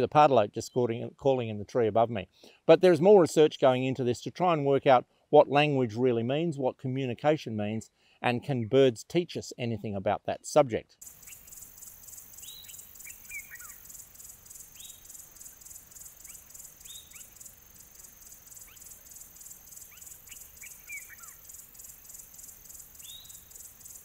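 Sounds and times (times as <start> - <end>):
insect chorus pulsing: 11.0 - 24.0.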